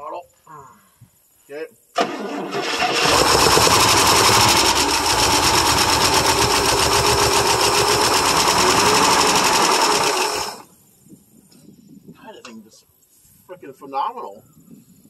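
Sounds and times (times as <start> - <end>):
engine running: 2.0 - 10.7.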